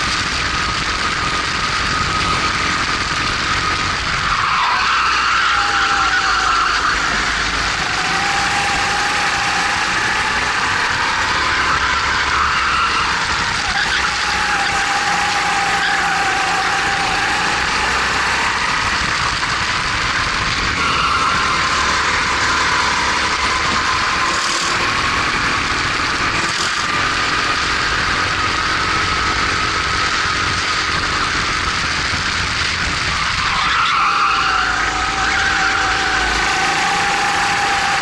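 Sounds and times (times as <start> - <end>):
kart engine running hard: 0.0 - 38.0.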